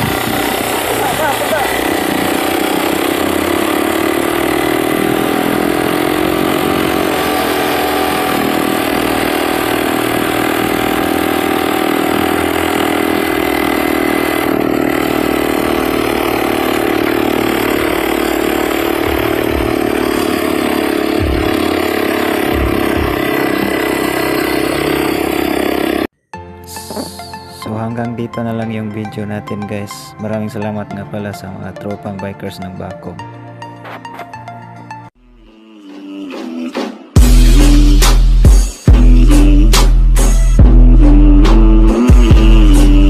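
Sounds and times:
two-stroke engine running: 0.0 - 26.1, 26.9 - 27.1, 37.2 - 40.0, 40.6 - 43.0.

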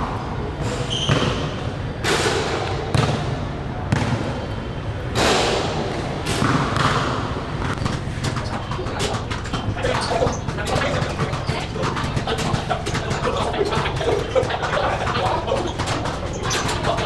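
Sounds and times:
basketballs bouncing on court: 6.4 - 17.0.

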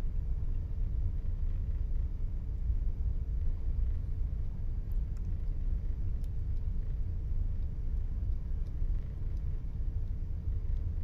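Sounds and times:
faint constant hum: 0.0 - 11.0
low machinery rumble: 0.0 - 11.0
faint ticks: 3.8 - 11.0.

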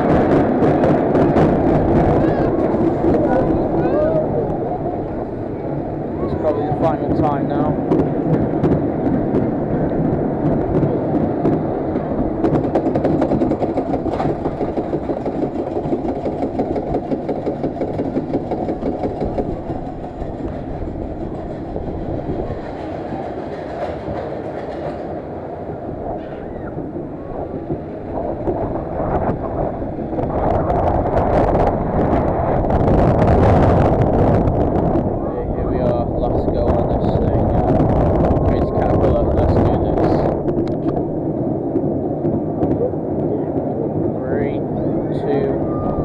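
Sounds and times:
ride car rumbling on track: 0.0 - 46.0
wheels clattering: 11.8 - 32.2.

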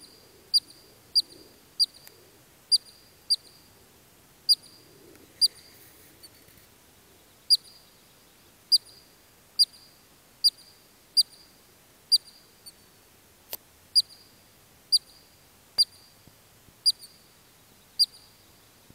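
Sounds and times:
ground squirrel alarm chirps: 0.0 - 2.1, 2.7 - 3.7, 4.5 - 5.7, 7.5 - 7.9, 8.7 - 11.5, 12.1 - 12.8, 14.0 - 14.3, 14.9 - 16.2, 16.8 - 17.3, 18.0 - 18.4
faint clicks: 2.0 - 2.2, 5.1 - 6.7.

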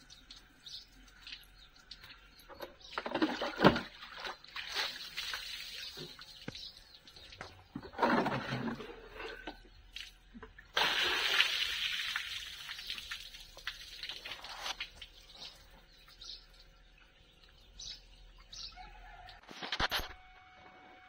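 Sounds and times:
water trickling and dripping: 0.0 - 7.7, 9.9 - 18.6
water splashing: 3.0 - 7.4, 9.9 - 15.6
bird chirps: 15.2 - 19.4.

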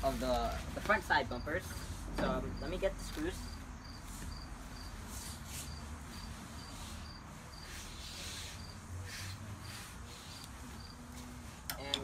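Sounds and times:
cricket chirping: 1.2 - 8.9, 9.6 - 11.0.

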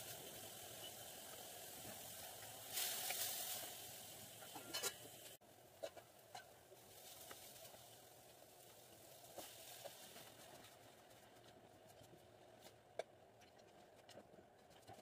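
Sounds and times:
water sizzling in hot pan: 0.0 - 11.3.

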